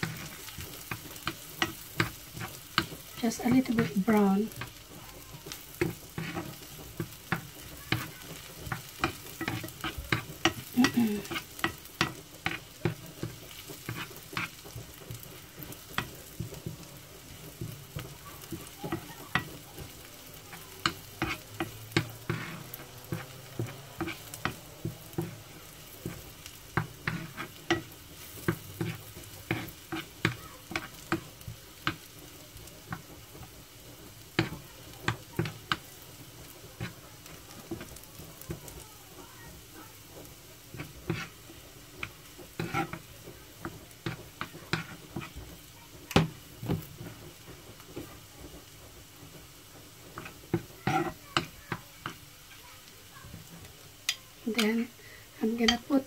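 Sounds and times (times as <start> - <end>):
utensil scraping and tapping pan: 0.0 - 52.6, 55.5 - 56.0
garlic sizzling in butter: 0.0 - 56.0.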